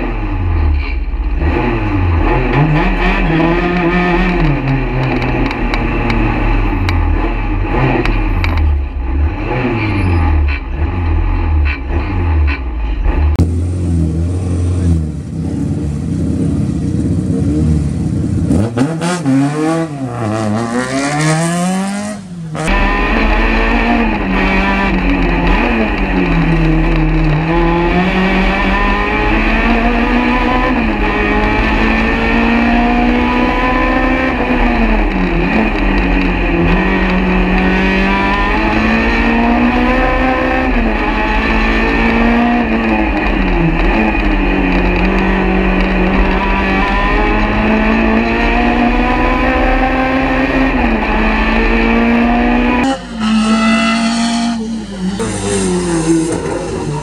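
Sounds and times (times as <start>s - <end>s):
car engine revving: 0.0s - 57.0s.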